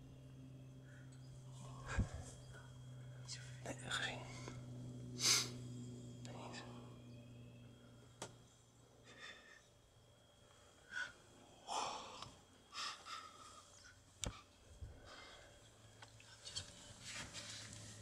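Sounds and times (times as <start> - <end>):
whispered breathing: 0.8 - 5.6, 6.2 - 7.0, 10.5 - 16.8.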